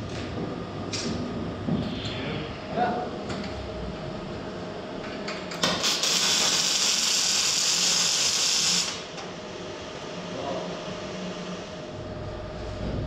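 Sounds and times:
welding arc striking click: 5.3s - 9.0s
arc welding hiss: 5.6s - 9.1s.

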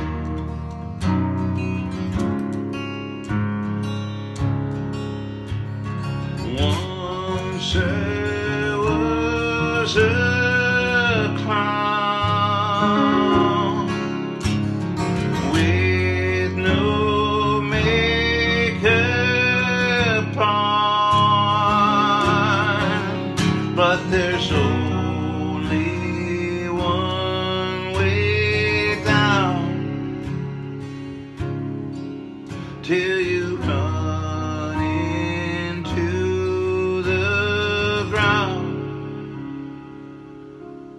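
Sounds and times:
acoustic guitar: 0.0s - 40.9s
man singing: 6.3s - 14.4s, 15.2s - 30.5s, 32.5s - 39.2s.

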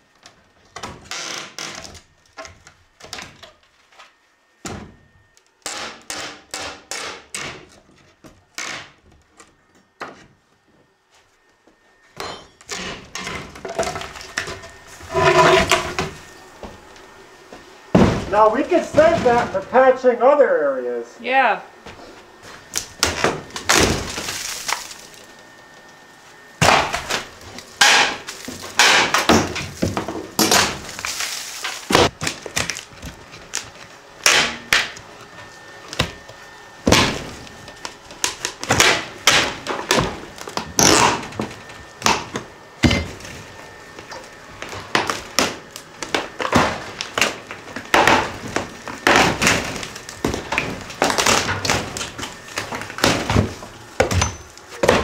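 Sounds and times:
wood cracking and thudding: 0.1s - 4.0s, 12.6s - 17.0s, 17.8s - 19.9s, 22.6s - 25.4s, 26.6s - 35.3s, 35.9s - 55.0s.

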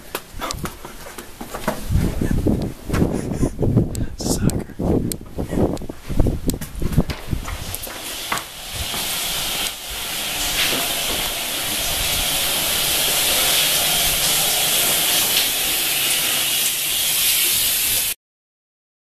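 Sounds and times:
shower water spray hissing: 7.2s - 18.2s.

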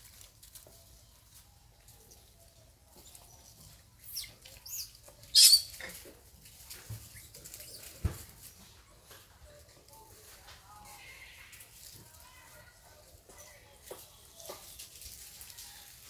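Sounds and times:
baby monkeys squeaking: 4.0s - 6.0s.

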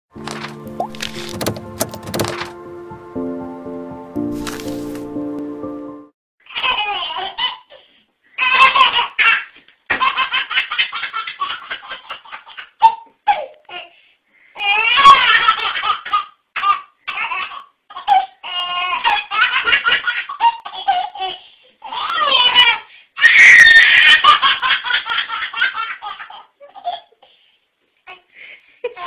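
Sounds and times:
baby belly-laughing: 8.4s - 13.6s.

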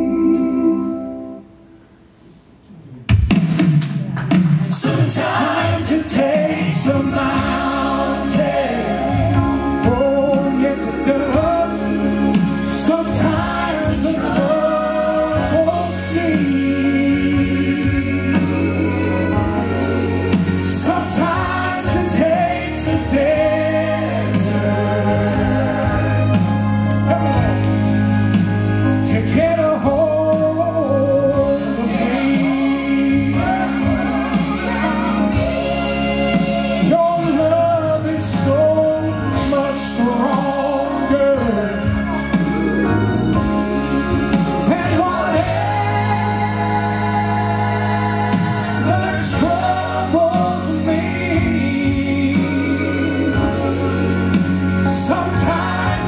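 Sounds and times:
man singing gospel into microphone: 0.0s - 1.2s, 4.8s - 28.2s, 28.8s - 56.0s
instrumental accompaniment: 3.0s - 56.0s.

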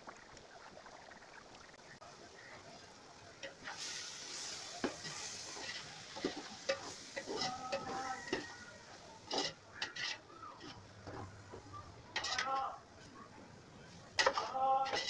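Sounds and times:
food sizzling: 0.0s - 15.0s
metal ladle scraping a pot: 3.4s - 12.8s, 14.2s - 15.0s.

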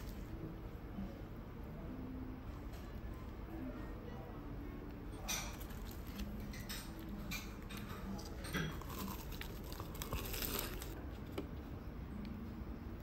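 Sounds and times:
crisp crunching and crinkling: 5.3s - 11.4s.

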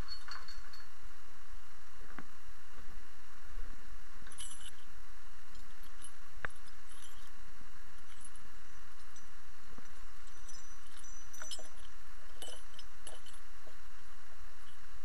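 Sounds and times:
metallic clinks of chain fittings: 0.0s - 1.0s, 4.3s - 4.9s, 5.5s - 7.4s, 8.0s - 13.8s.

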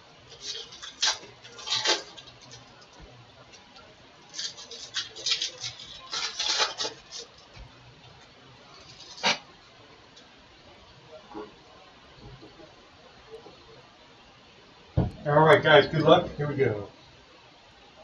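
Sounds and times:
foil wrapper crinkling and tearing: 0.3s - 7.6s, 8.7s - 9.4s.

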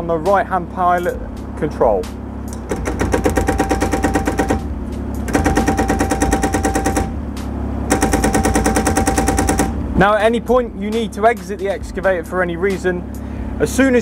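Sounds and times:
digger engine running: 0.0s - 14.0s
hydraulic breaker hammering: 2.5s - 10.1s.

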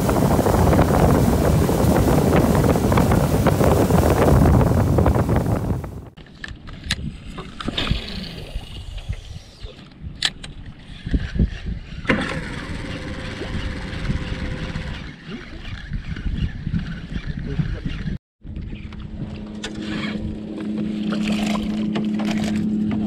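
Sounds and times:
outboard motor running: 0.0s - 6.1s, 11.9s - 23.0s
wind buffeting microphone: 0.0s - 20.8s
water and wind wash: 0.0s - 23.0s.

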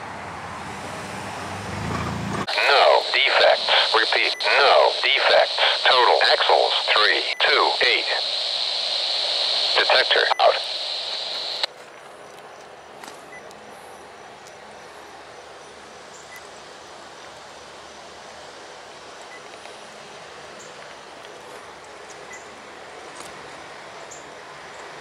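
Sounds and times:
outdoor background hiss: 2.5s - 25.0s.

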